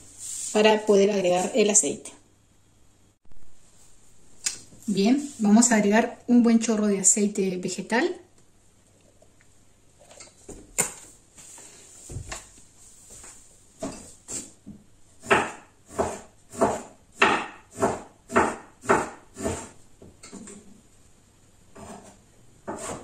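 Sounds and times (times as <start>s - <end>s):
utensil strokes: 0.0s - 0.8s.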